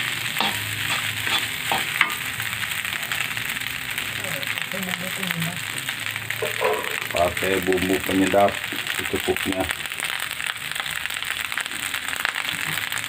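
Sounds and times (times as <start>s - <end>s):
rice sizzling in a pan: 0.0s - 13.0s
metal spatula scraping pan: 0.3s - 2.3s, 6.4s - 7.1s.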